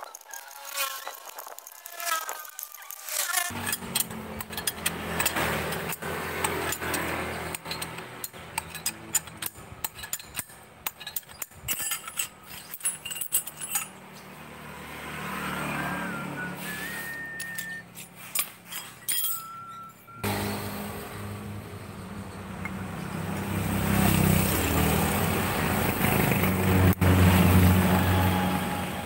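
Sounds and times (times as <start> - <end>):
metal hand tools clinking: 1.9 - 14.2, 17.1 - 20.2
vehicle engine humming: 3.5 - 10.9, 13.4 - 18.2, 19.4 - 29.0.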